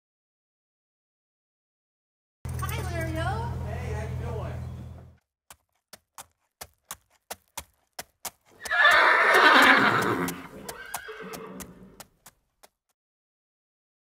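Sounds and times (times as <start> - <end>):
hooves clip-clopping on hard ground: 4.8 - 13.0
horse whinnying: 8.6 - 12.0.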